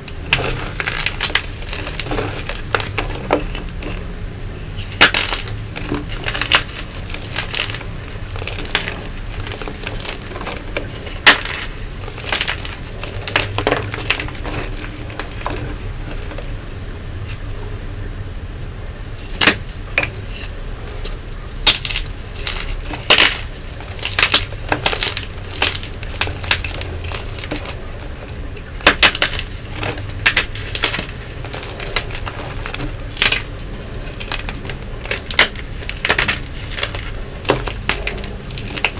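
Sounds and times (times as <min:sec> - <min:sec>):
chalk blocks crunching and snapping: 0:00.0 - 0:17.8, 0:19.1 - 0:38.9.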